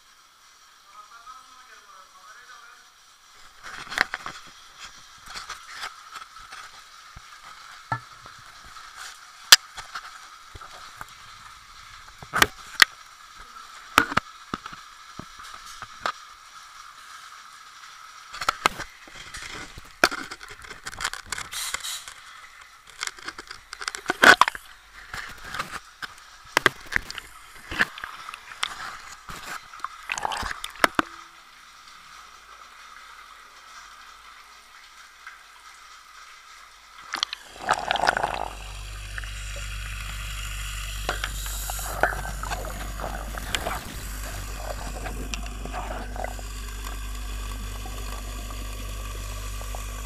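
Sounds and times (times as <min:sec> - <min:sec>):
crackling hiss: 0:00.0 - 0:50.0.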